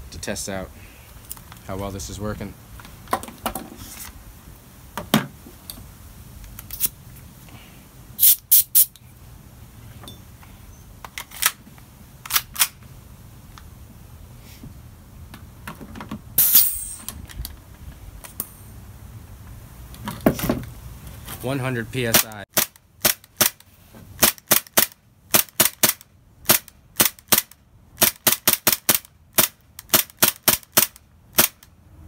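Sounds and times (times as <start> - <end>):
loud gas burst with hiss: 8.1 - 8.9, 16.4 - 17.1
pistol clicks and clacks: 24.2 - 31.7.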